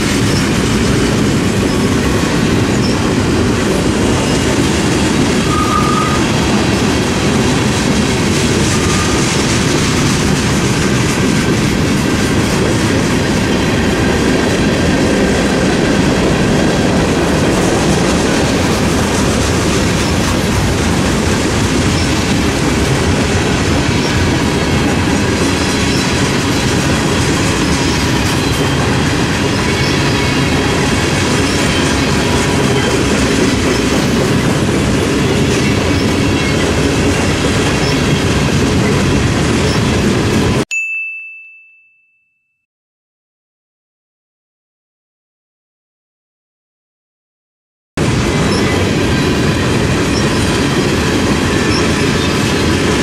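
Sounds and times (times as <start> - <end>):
freight train cars rolling past: 0.0 - 40.6, 48.0 - 53.0
steel wheels clattering over rail joints: 0.0 - 40.6, 48.0 - 53.0
train wheel squeal: 1.6 - 3.4, 4.1 - 7.2, 8.5 - 10.1, 17.8 - 20.4, 21.6 - 22.6, 23.8 - 24.4, 25.4 - 40.0, 48.4 - 53.0.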